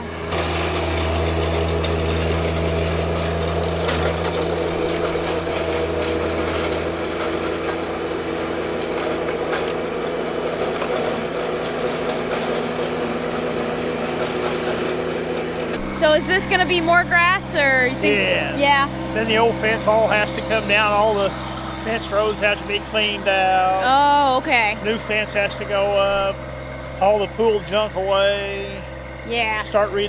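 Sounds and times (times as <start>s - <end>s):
rotary tiller in hard soil: 0.0s - 30.0s
tractor diesel engine rumbling: 0.0s - 30.0s.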